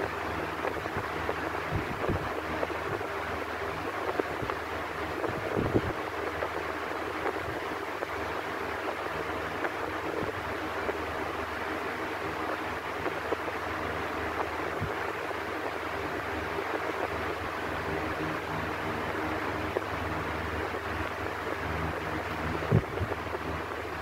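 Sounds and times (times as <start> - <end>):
electric fan air rush: 0.0 - 24.0
low motor hum: 13.0 - 24.0.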